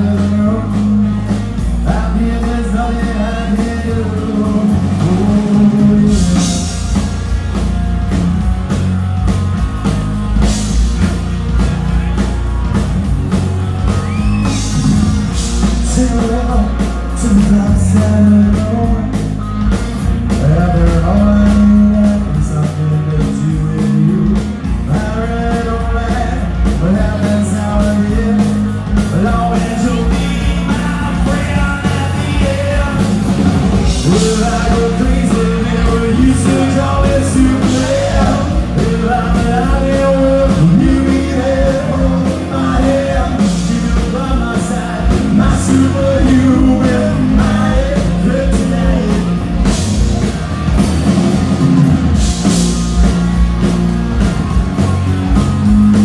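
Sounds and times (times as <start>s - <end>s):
live rock band: 0.0s - 56.0s
person singing: 20.3s - 49.7s.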